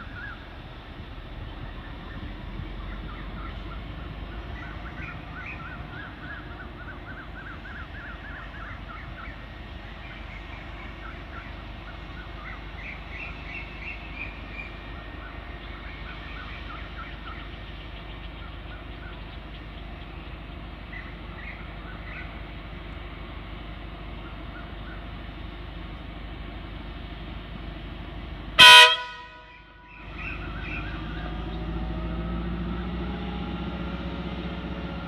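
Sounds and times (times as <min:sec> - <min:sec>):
distant diesel train rumble: 0:00.0 - 0:35.0
small birds chirping: 0:01.5 - 0:23.2, 0:29.8 - 0:31.8.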